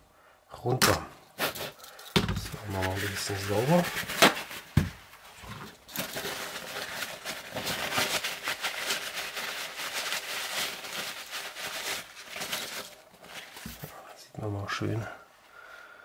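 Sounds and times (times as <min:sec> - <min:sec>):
cloth rubbing on metal: 0:02.5 - 0:05.8.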